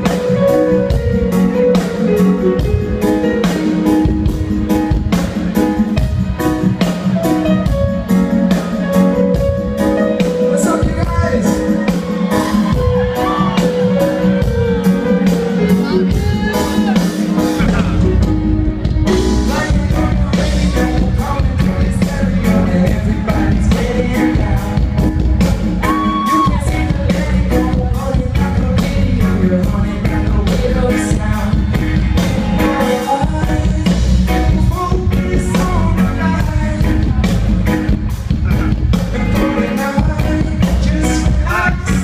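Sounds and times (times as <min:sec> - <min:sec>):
live reggae band playing: 0:00.0 - 0:42.0
person singing: 0:09.8 - 0:42.0.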